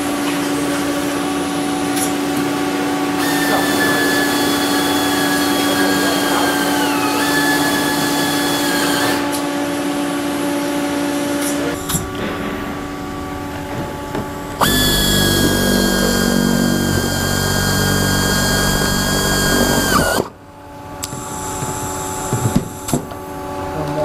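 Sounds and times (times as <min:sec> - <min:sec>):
pneumatic air drill whining: 0:03.2 - 0:09.4, 0:11.7 - 0:20.4, 0:21.0 - 0:23.1.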